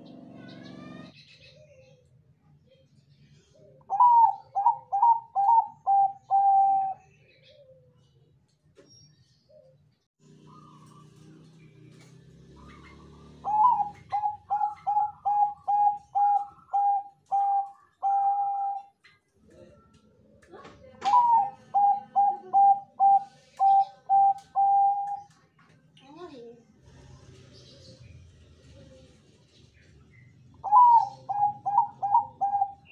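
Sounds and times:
dove cooing: 3.5 - 8.0, 12.5 - 19.0, 21.0 - 25.4, 30.6 - 32.9.

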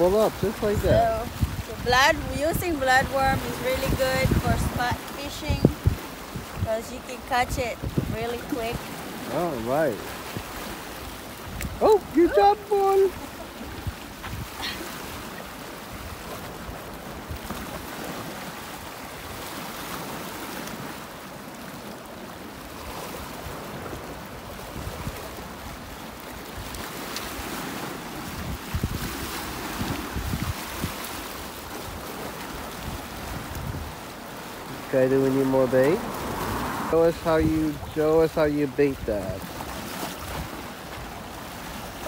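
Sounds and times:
wind buffeting microphone: 0.0 - 20.2, 22.8 - 42.0
small waves washing against rocks: 0.0 - 42.0.

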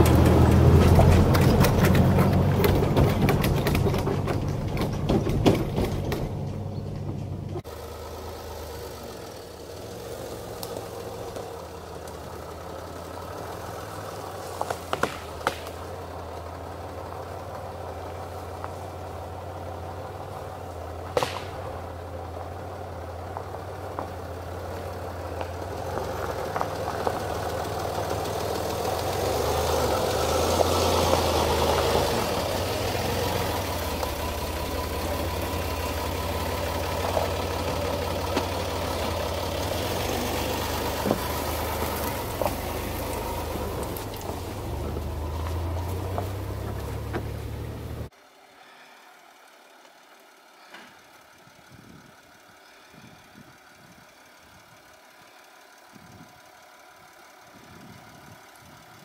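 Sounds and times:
sharp knocks and clicks: 0.0 - 7.6
vehicle engine at low revs: 0.0 - 59.0.

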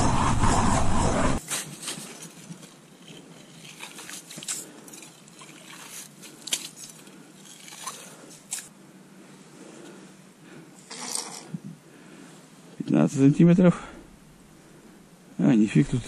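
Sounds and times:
slush trickling and squelching: 1.8 - 8.8
scoop scraping against ice: 10.9 - 11.5.

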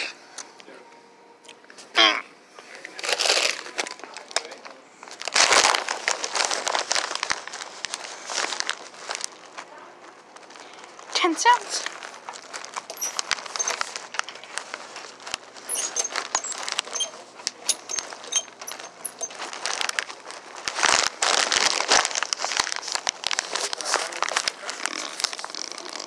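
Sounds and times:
handling noise on phone: 12.0 - 22.0.

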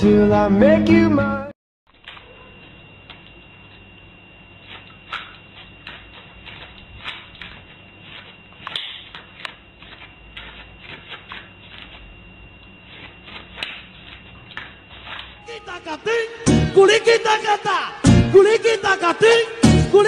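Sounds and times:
thin high whine: 1.9 - 20.0
dog claws scratching on floor: 4.6 - 15.4.

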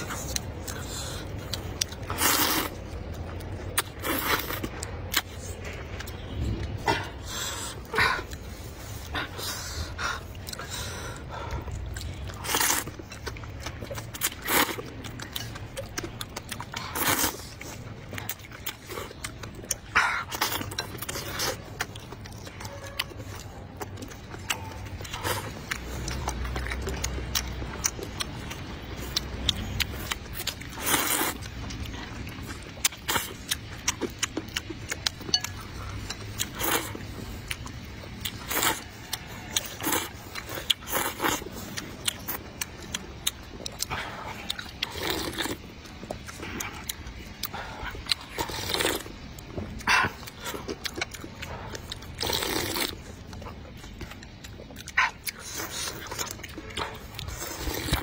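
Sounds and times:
noodles slurped: 0.0 - 5.6, 25.1 - 35.1, 35.8 - 49.1, 49.8 - 58.0
chewing: 0.0 - 58.0.

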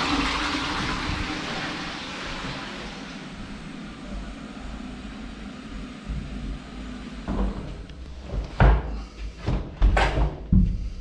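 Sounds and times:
sharp knocks and thuds: 7.3 - 10.8.

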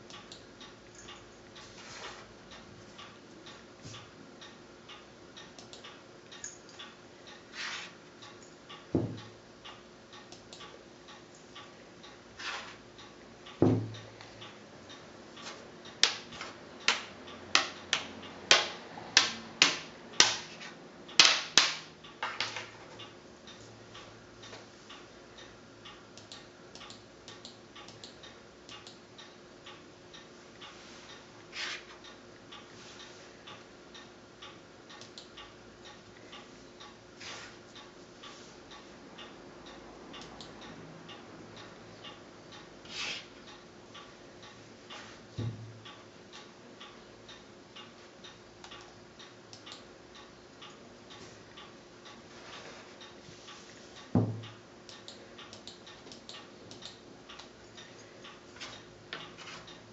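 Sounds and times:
soft regular ticking: 0.0 - 59.9.

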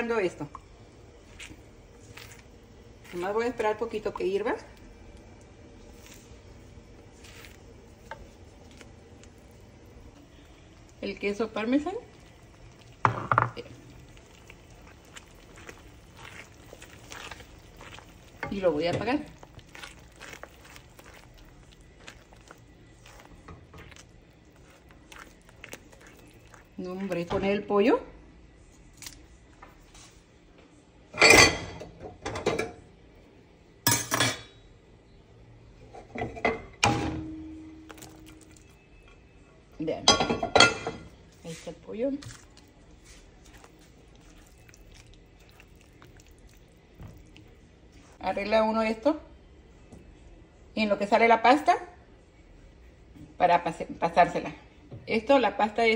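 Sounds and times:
spatula stirring sauce in skillet: 1.0 - 27.5, 40.6 - 48.2.

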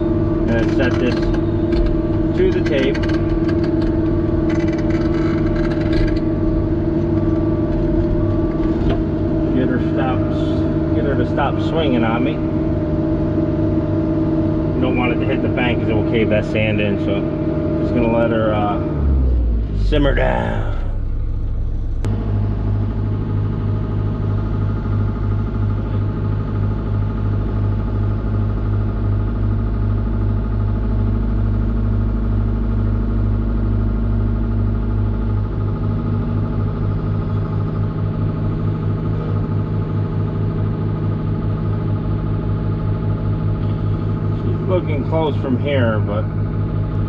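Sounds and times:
diesel engine running: 0.0 - 47.0.

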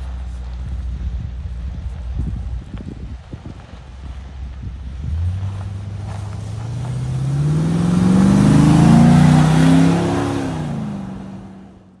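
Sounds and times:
car engine accelerating past: 4.9 - 12.0.

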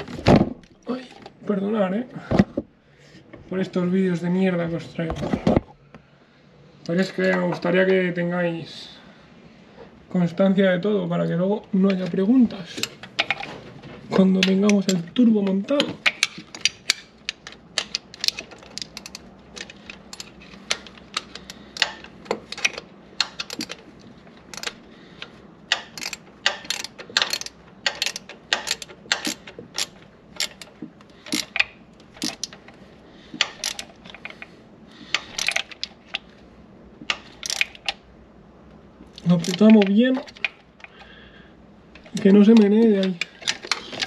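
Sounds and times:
ratchet wrench clicking: 16.0 - 23.8, 24.5 - 24.8, 25.7 - 32.6, 33.4 - 34.3, 35.2 - 35.9, 37.1 - 38.0.

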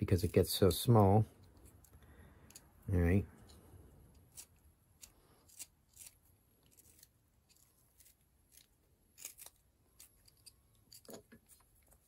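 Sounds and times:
knife scraping wood: 3.4 - 12.0.

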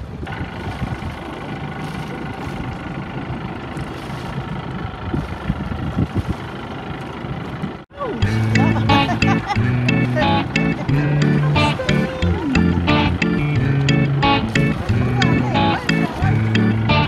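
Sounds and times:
wind rumble on microphone: 0.0 - 7.8, 10.8 - 17.0
boat engine running: 0.0 - 17.0.

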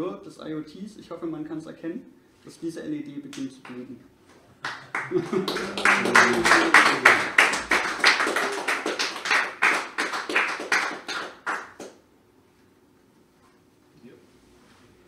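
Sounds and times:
audience applauding: 4.6 - 11.9.

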